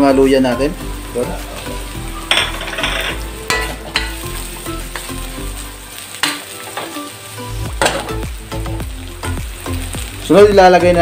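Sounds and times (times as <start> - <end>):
sizzling in hot oil: 0.0 - 11.0
wok scraping knocks: 2.3 - 4.2.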